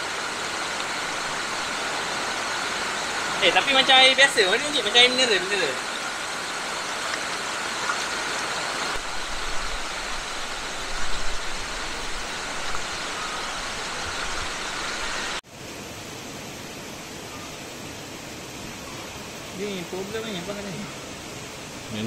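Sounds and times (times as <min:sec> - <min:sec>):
river water rushing over rocks: 0:00.0 - 0:16.2.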